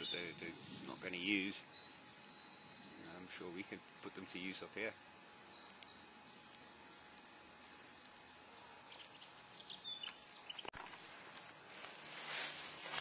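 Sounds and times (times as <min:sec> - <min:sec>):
bird chirps: 0:00.0 - 0:10.7
sharp clicks: 0:05.6 - 0:05.9.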